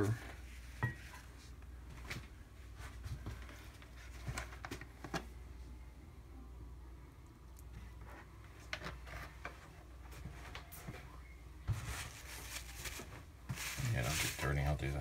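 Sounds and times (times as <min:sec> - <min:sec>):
paper rustling: 0:11.7 - 0:14.9.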